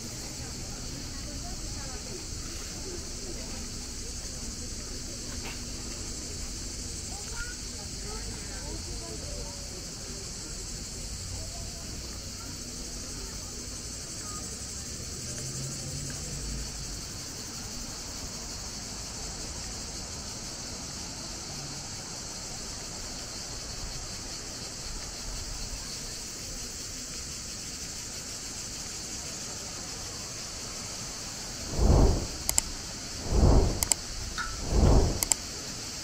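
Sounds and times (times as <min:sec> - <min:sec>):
cicadas buzzing: 0:00.0 - 0:34.6.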